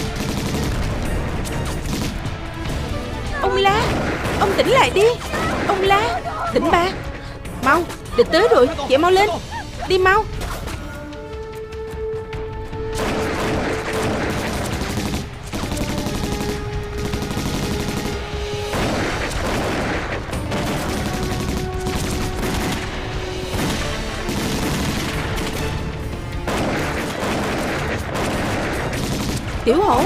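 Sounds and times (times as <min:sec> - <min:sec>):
rifle and machine-gun fire: 0:00.0 - 0:02.8, 0:12.9 - 0:30.0
background music with held notes: 0:00.0 - 0:30.0.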